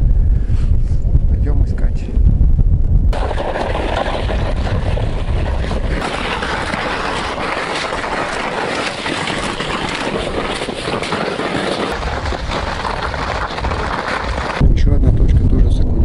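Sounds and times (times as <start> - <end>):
wind buffeting microphone: 0.0 - 16.0
crunching on ice: 3.2 - 14.6.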